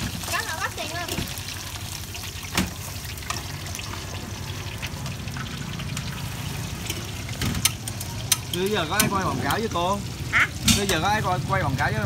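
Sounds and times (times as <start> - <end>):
oil sizzling in a wok: 0.0 - 12.0
metal utensils clinking: 5.3 - 9.7.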